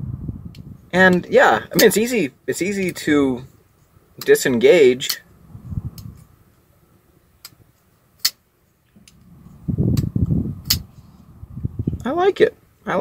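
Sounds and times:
pocket knife lock clicks: 0:10.0 - 0:10.9.

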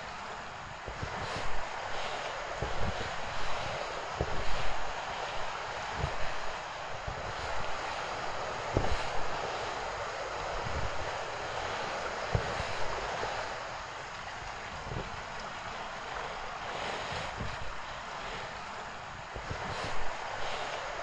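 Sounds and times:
steady rushing background noise: 0:00.0 - 0:21.0
soft low thumps: 0:02.6 - 0:04.9, 0:05.9 - 0:09.4, 0:12.3 - 0:13.1, 0:14.3 - 0:15.6, 0:16.9 - 0:17.8.

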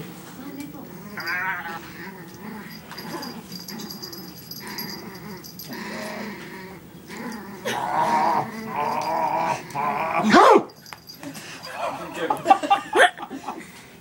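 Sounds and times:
puppy growling: 0:00.8 - 0:10.8.

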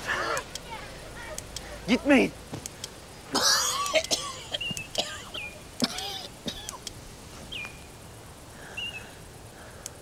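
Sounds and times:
high bird chirps: 0:04.5 - 0:05.6, 0:07.5 - 0:08.0, 0:08.7 - 0:09.1.

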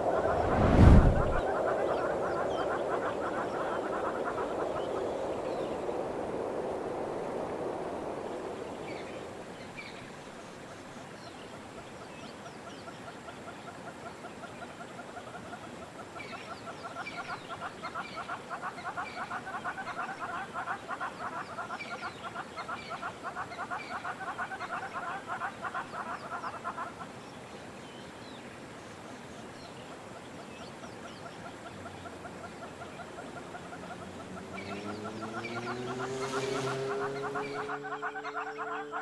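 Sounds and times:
pulsing animal chatter: 0:33.3 - 0:39.0.

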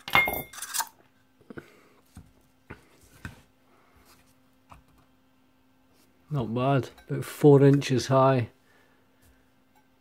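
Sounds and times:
metal cup rings clattering: 0:00.0 - 0:00.8.

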